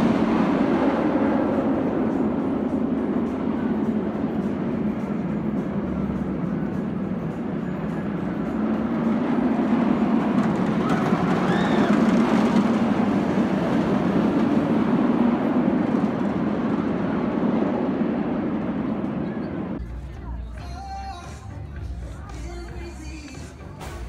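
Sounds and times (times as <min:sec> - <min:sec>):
roller coaster rumbling overhead: 0:00.0 - 0:24.0.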